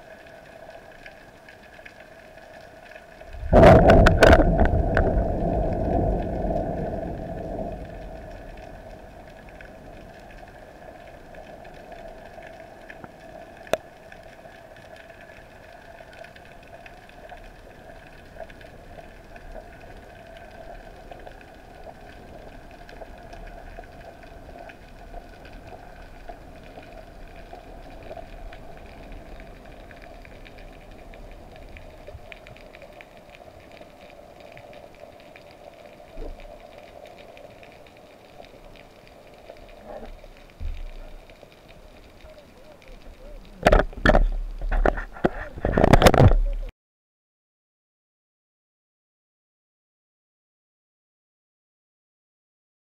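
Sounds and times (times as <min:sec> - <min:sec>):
faint crackling: 0:00.0 - 0:46.7
loud underwater boom: 0:03.3 - 0:09.4.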